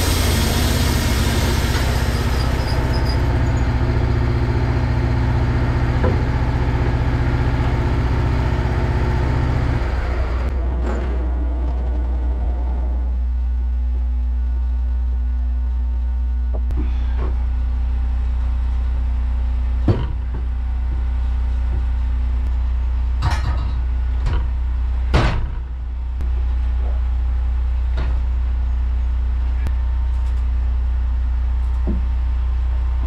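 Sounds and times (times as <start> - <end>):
sawmill engine running: 0.0 - 13.7.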